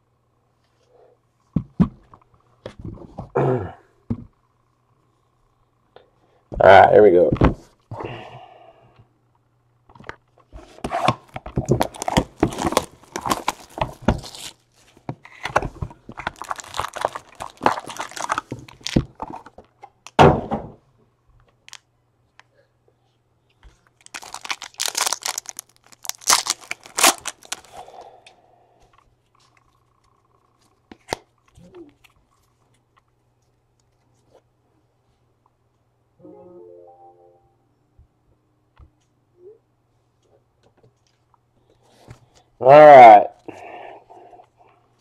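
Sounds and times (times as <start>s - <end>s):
foil wrapper tearing and crinkling: 11.8s - 14.7s, 16.2s - 19.2s, 24.0s - 28.0s
thud: 20.2s - 20.8s.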